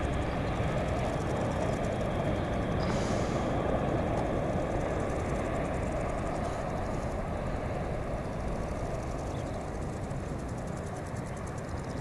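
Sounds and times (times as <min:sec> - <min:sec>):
jet engines rumbling: 0:00.0 - 0:12.0
high hiss: 0:02.7 - 0:07.7.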